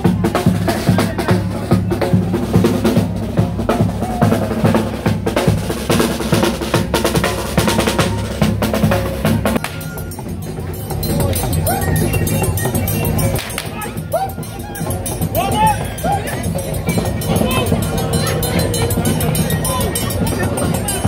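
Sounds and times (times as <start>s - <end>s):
bass drum beating: 0.0s - 21.0s
snare drum beating: 0.4s - 10.1s.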